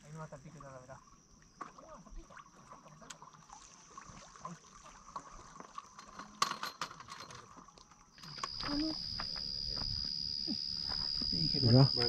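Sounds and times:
faint high tone: 8.2s - 12.0s.

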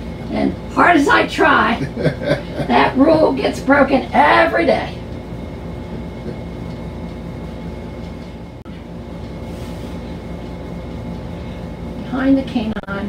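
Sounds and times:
mechanical hum: 0.0s - 13.0s.

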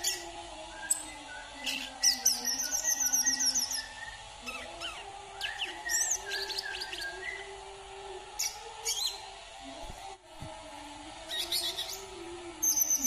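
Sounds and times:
sunbird singing: 0.0s - 7.6s, 8.4s - 9.2s, 11.3s - 13.0s.

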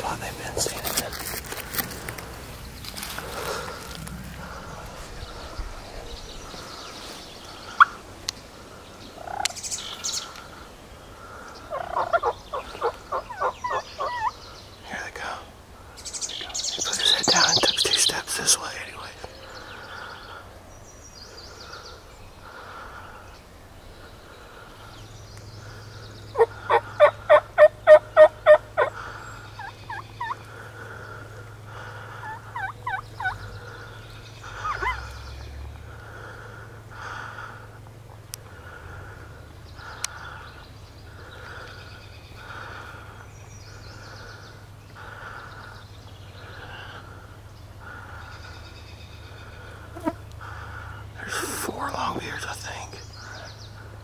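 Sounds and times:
turkey calling: 1.7s - 8.4s, 9.0s - 14.5s, 25.6s - 37.6s.

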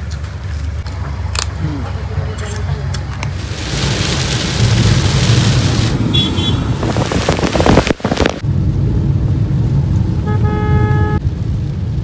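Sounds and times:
car rumbling on road: 0.0s - 12.0s
rain hissing on windscreen: 3.1s - 8.4s, 11.2s - 12.0s
car horn: 6.1s - 6.7s, 10.2s - 11.2s.

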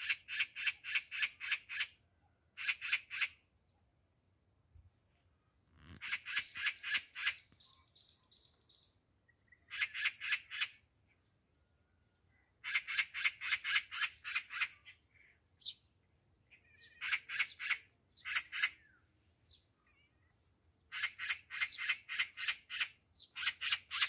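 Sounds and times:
magpie rattling chatter: 6.0s - 7.4s, 9.7s - 10.8s, 12.6s - 14.8s, 16.9s - 18.8s, 20.9s - 24.0s.

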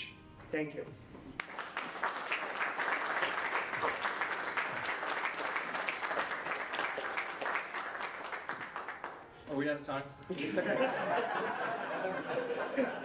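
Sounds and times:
audience applauding: 1.4s - 9.4s.

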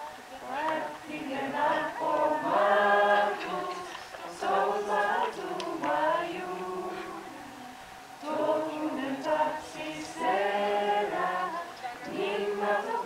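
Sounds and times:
choir singing a cappella: 0.0s - 13.0s.

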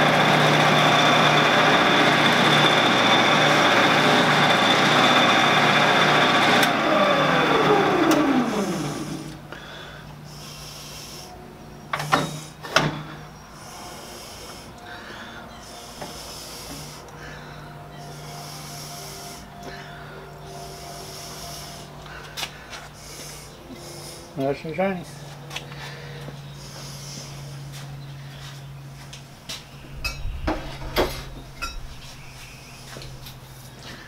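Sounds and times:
lathe running: 0.0s - 9.5s
lathe winding down whine: 0.0s - 9.5s
low hum: 25.7s - 34.0s.

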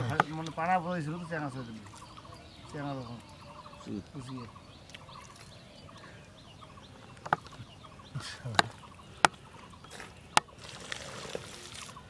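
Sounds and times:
hands squelching in mud: 8.5s - 12.0s.

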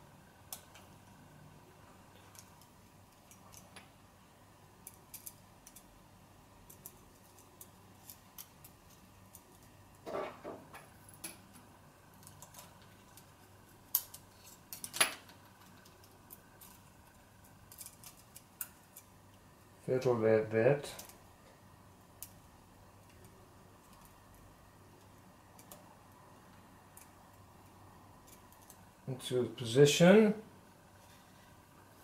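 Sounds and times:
small parts clicking and tapping: 0.4s - 1.1s, 2.2s - 4.0s, 4.8s - 6.0s, 6.6s - 19.4s, 20.9s - 28.9s.

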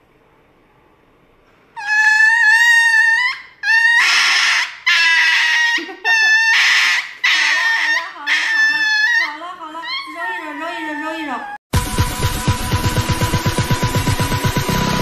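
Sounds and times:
dog screaming: 1.8s - 11.6s.

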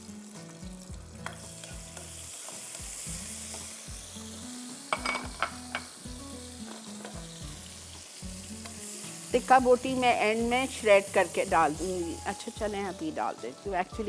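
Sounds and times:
garlic sizzling in hot oil: 0.0s - 14.0s
utensil clicking against pan: 1.2s - 2.8s.

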